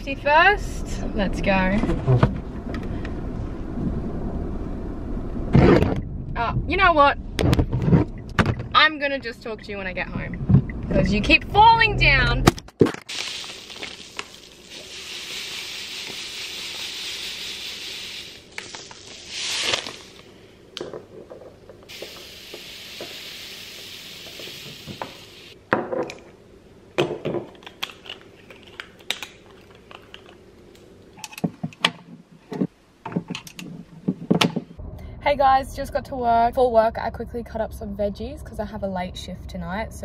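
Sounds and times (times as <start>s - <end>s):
seeds trickling through funnel: 13.1s - 20.4s.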